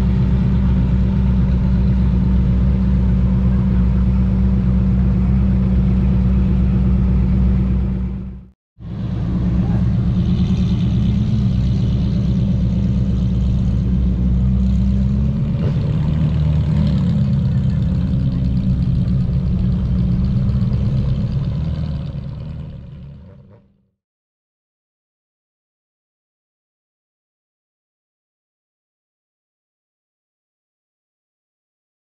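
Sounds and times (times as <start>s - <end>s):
sports car engine running: 0.0s - 23.8s.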